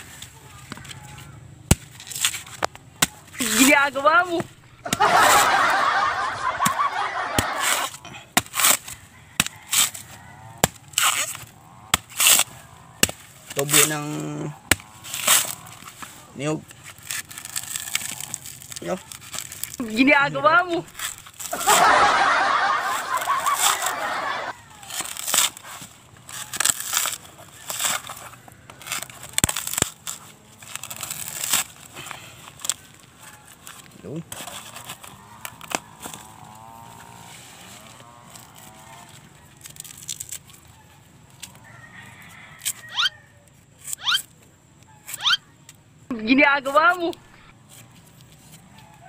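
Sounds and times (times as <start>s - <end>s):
fibre tearing and rustling: 0.0s - 41.9s
knife chopping coconut husk: 1.7s - 5.5s, 6.6s - 16.0s
fowl honking: 21.6s - 24.6s.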